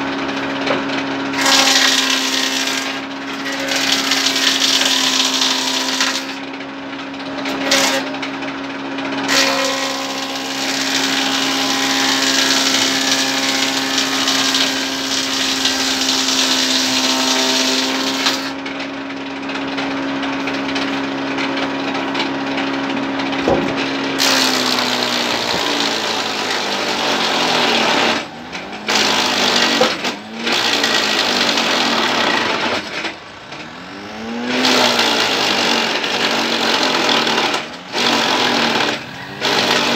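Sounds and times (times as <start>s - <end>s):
band saw motor hum: 0.0s - 39.9s
saw blade rasping on wood: 1.4s - 6.4s, 7.5s - 8.2s, 9.3s - 18.6s, 23.5s - 33.1s, 34.0s - 39.9s.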